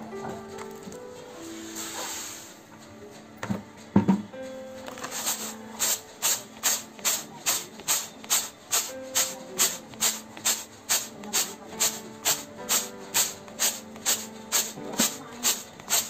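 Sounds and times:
grains rattling in a basket: 0:04.7 - 0:16.0.

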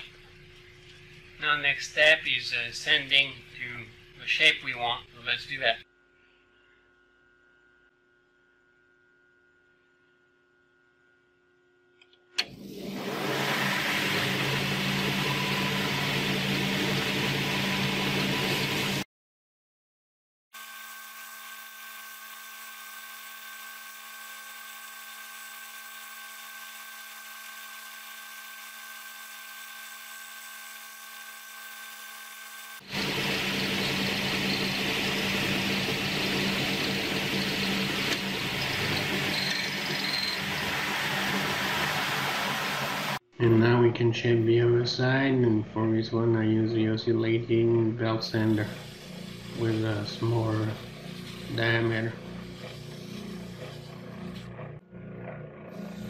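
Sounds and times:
steady machine hum: 0:00.0 - 0:12.3, 0:32.8 - 0:43.2, 0:48.4 - 0:56.0
belt sander sanding wood: 0:21.1 - 0:43.2, 0:48.4 - 0:56.0.

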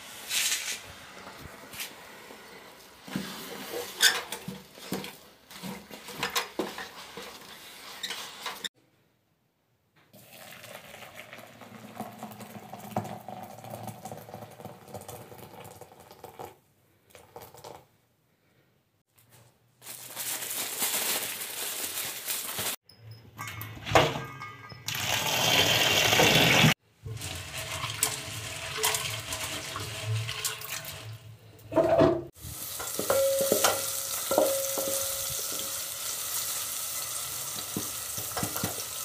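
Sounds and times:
wooden stick stirring in metal pot: 0:03.0 - 0:08.7
running tap water: 0:24.9 - 0:31.3, 0:32.4 - 0:39.0.

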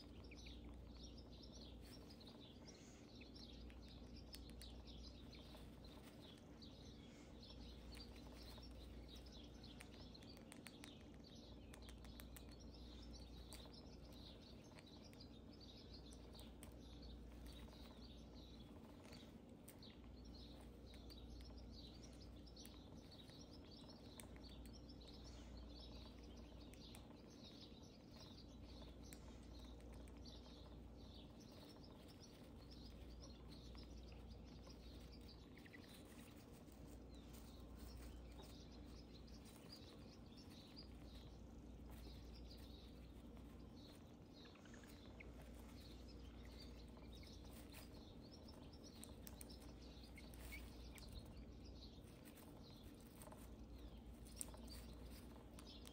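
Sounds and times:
hamster gnawing corn: 0:00.0 - 0:55.9.

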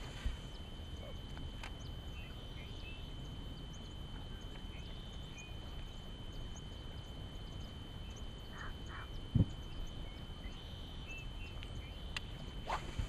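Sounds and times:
faint animal calls: 0:07.4 - 0:11.1.

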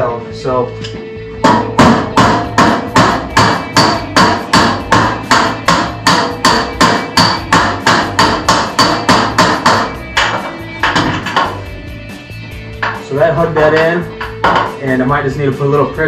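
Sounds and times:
hammer striking sheet metal: 0:01.4 - 0:11.7, 0:12.7 - 0:15.0.

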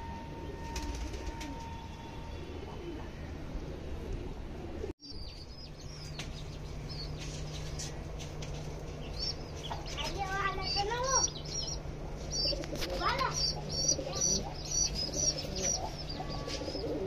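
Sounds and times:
steady low hum: 0:00.0 - 0:17.0
pigeons cooing: 0:12.1 - 0:17.0.

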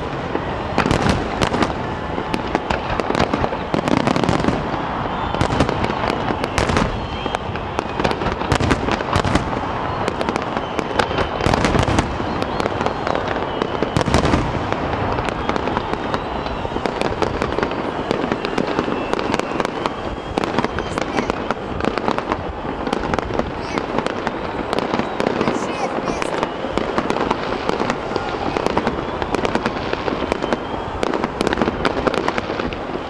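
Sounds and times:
fireworks bangs and crackles: 0:00.0 - 0:33.0.

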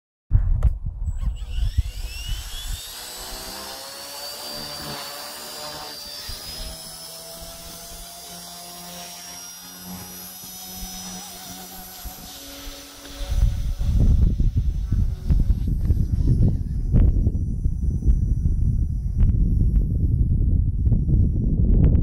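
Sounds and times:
electric motor whine: 0:01.1 - 0:21.7
rotor hum: 0:01.1 - 0:22.0
low rumble: 0:13.2 - 0:22.0.

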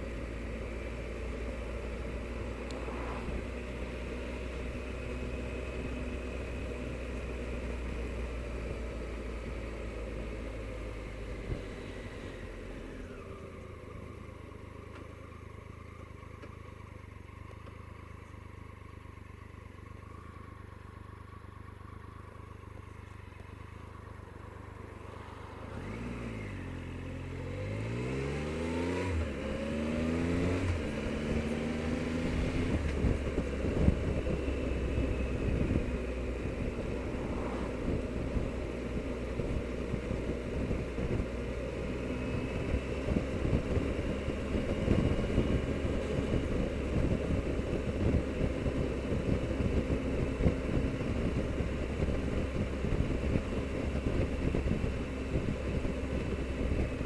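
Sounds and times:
motorcycle engine accelerating: 0:00.0 - 0:57.0
wind on microphone: 0:02.7 - 0:03.6, 0:36.5 - 0:39.0.

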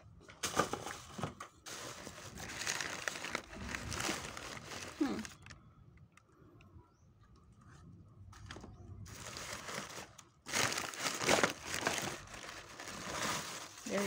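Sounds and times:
plastic crinkling and rustling: 0:00.3 - 0:05.6, 0:08.4 - 0:14.0.

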